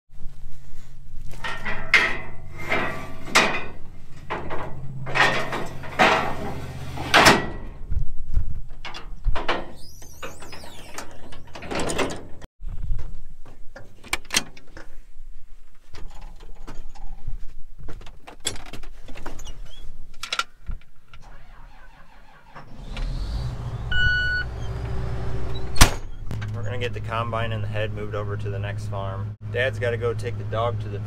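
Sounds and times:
diesel engine running: 21.2 - 31.0
short electronic beep: 23.8 - 24.6.

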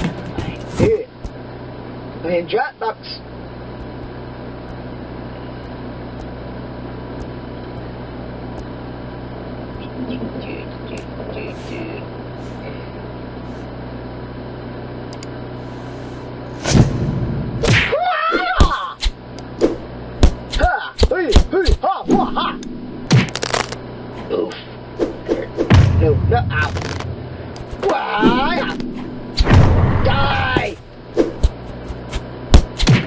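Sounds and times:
steady low hum with hiss: 0.0 - 33.0
faint clicks: 15.1 - 15.3
loud pitch-bending sound: 25.1 - 30.9.

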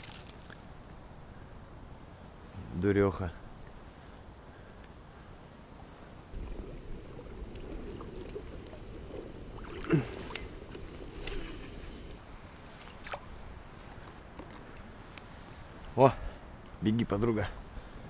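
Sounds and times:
water sloshing: 0.0 - 0.6, 6.3 - 13.3
handling noises on raft: 6.4 - 15.1.

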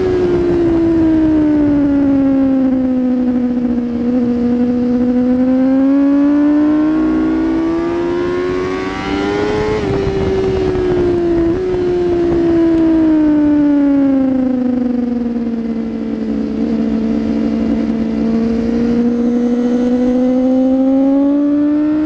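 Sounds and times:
motorcycle engine accelerating: 0.0 - 22.0
wind noise: 0.0 - 22.0.

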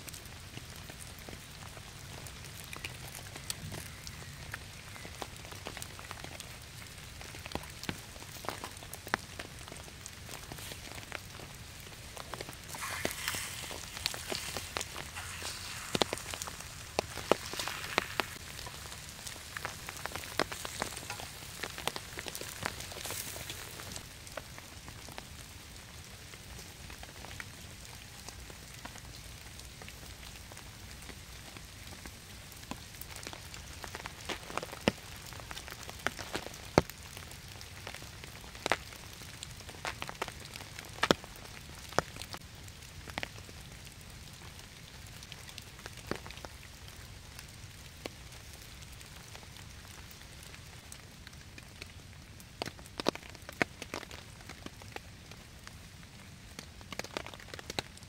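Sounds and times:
steady rain falling: 0.0 - 58.0
single raindrops tapping: 10.3 - 24.1.

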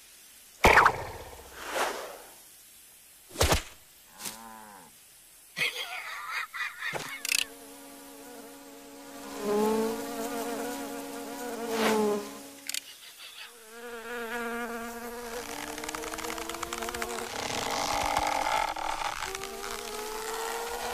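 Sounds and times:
cartoon insect buzzing: 7.0 - 20.9.

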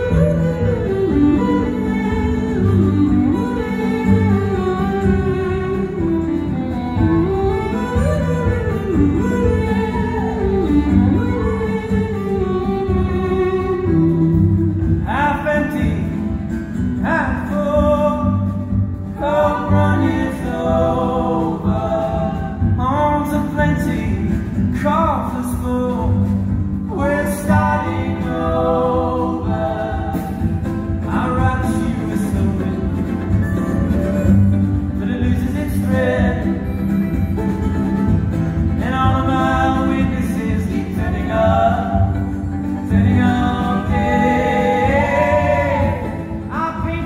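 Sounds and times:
violin phrases: 0.0 - 16.2
strummed acoustic guitar: 0.0 - 47.0
upright bass: 0.0 - 47.0.

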